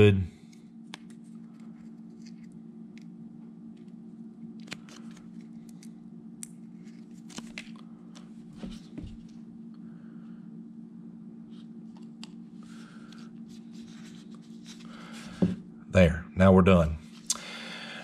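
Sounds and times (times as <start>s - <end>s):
steady low hum: 0.0s - 18.0s
vinyl patch clicks and rustles: 6.8s - 8.3s.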